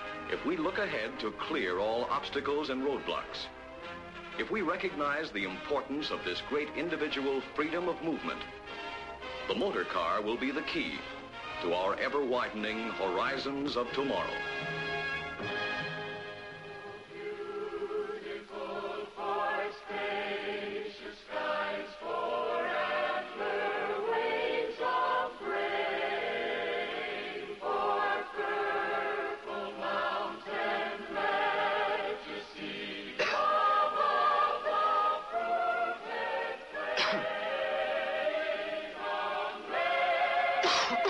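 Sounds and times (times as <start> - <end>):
mixed choir singing: 16.8 - 41.0.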